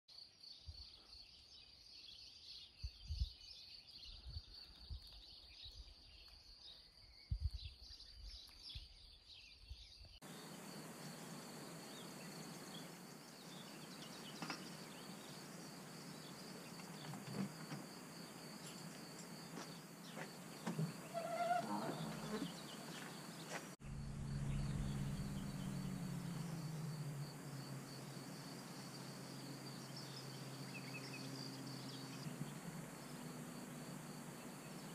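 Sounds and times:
bird chirps: 0.6s - 34.9s
even hiss: 10.2s - 34.9s
insect trill: 10.2s - 34.9s.

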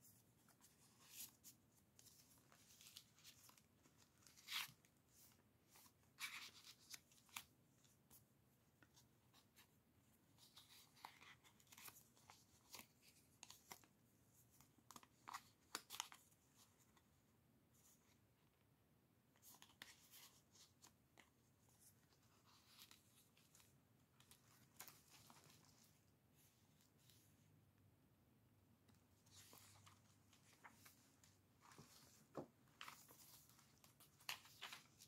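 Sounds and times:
paper rustling and crinkling: 10.4s - 16.7s, 19.4s - 27.2s, 29.1s - 35.0s.

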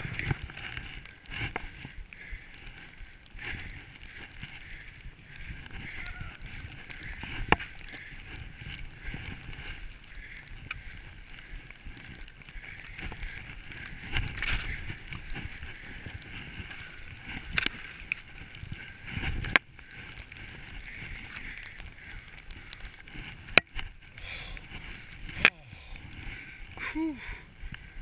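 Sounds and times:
skis bumping rough snow: 0.0s - 2.0s
wind on microphone: 0.0s - 28.0s.

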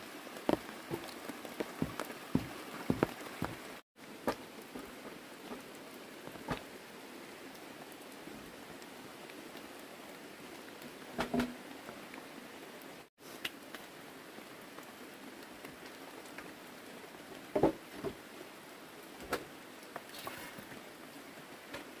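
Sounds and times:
steady rain hiss: 0.0s - 22.0s
dull wooden knocks: 1.7s - 4.4s.

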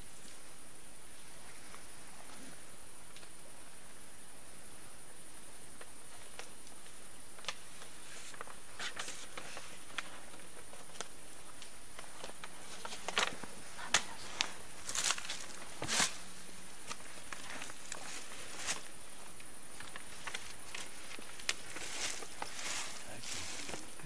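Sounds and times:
night insects chirring: 0.0s - 24.0s
light clicks and rustles: 5.8s - 24.0s
shuffling footsteps: 19.7s - 24.0s.

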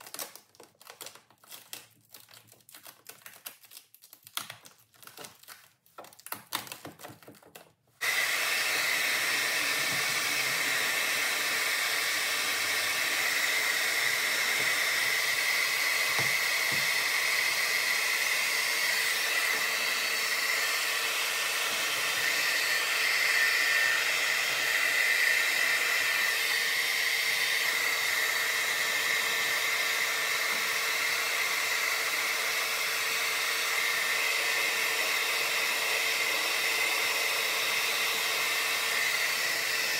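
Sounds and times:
hair dryer whine and rushing air: 8.0s - 39.9s.

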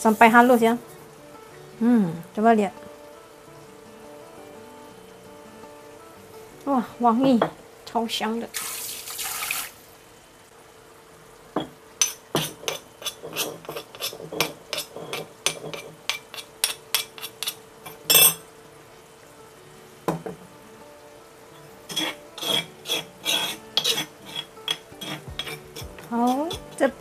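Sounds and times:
metal spatula scraping a pan: 12.0s - 18.4s, 21.8s - 27.0s.

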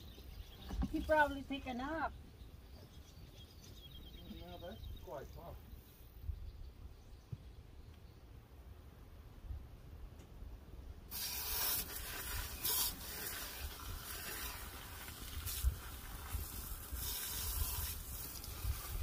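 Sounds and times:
hose water spraying on tire: 11.1s - 19.0s.

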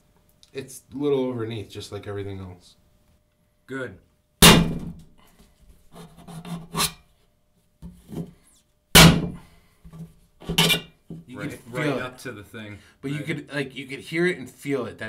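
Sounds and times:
blade grating through tin: 6.1s - 7.0s.

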